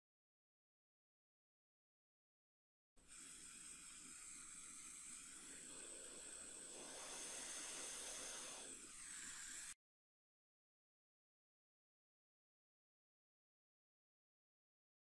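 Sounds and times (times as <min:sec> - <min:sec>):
steady hiss: 0:03.0 - 0:09.8.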